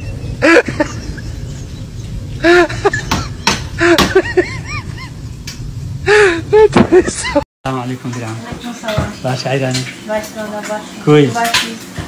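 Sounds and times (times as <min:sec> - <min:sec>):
dishes clattering in a sink: 0:08.0 - 0:12.0.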